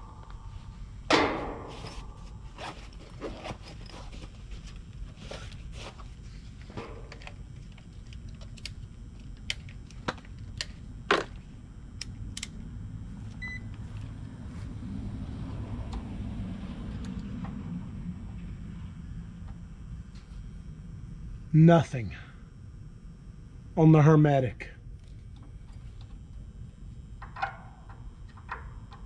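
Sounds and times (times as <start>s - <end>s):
low steady rumble: 0.0s - 29.0s.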